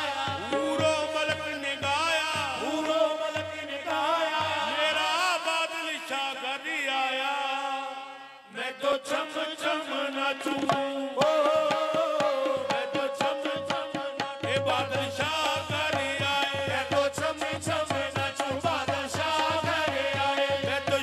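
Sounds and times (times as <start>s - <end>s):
tabla strikes: 0.0s - 5.2s, 10.4s - 21.0s.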